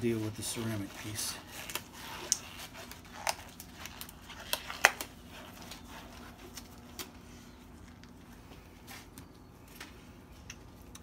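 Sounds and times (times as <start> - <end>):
glove handling ticks: 0.7 - 11.0.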